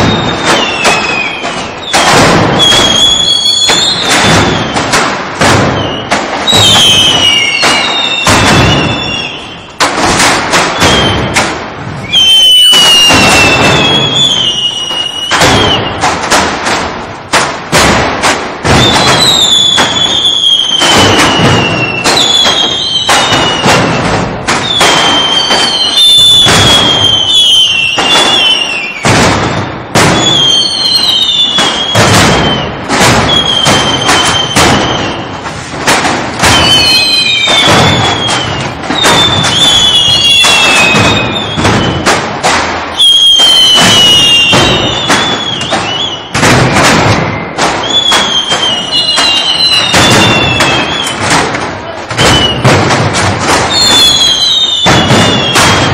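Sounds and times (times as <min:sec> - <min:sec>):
short falling whistles: 0:00.0 - 0:04.8, 0:05.7 - 0:09.8, 0:12.0 - 0:16.0, 0:24.6 - 0:29.0, 0:30.2 - 0:35.4, 0:36.5 - 0:42.0, 0:43.0 - 0:46.4, 0:47.2 - 0:51.2, 0:52.2 - 0:52.7, 0:53.7 - 0:55.9.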